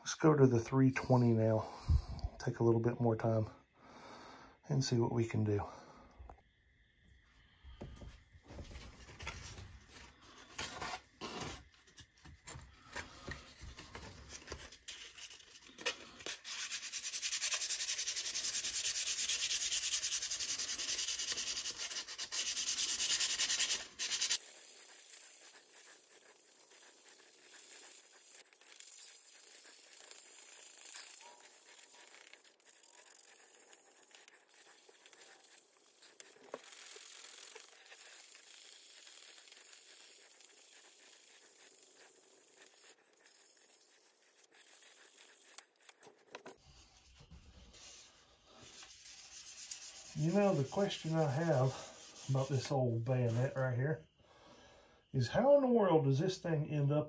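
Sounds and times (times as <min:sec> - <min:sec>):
sandpaper rustling: 0:12.9 - 0:53.6
sandpaper rubbing on metal: 0:14.6 - 0:45.9, 0:47.7 - 0:53.6.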